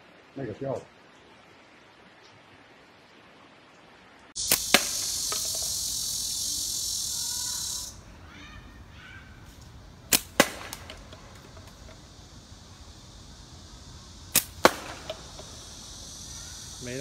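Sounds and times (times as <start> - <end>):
loud steady high hiss: 0.0 - 17.0
slingshot cracks: 4.4 - 8.0, 9.5 - 13.1, 13.8 - 16.9.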